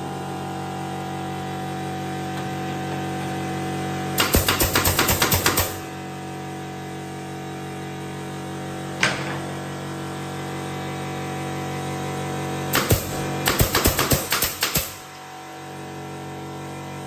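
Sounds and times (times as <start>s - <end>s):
nail gun firing: 4.2s - 5.8s, 12.7s - 15.0s.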